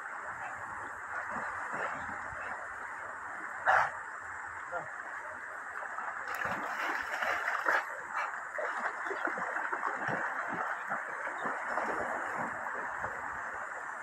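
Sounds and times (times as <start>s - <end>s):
shallow river over stones: 0.0s - 14.0s
dogs splashing through water: 5.8s - 13.6s.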